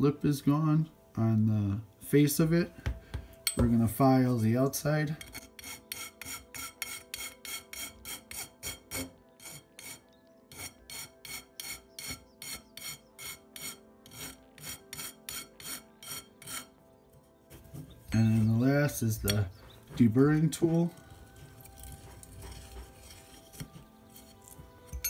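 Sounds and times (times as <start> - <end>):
hand file rasping on copper tube: 5.2 - 16.8, 21.0 - 25.0.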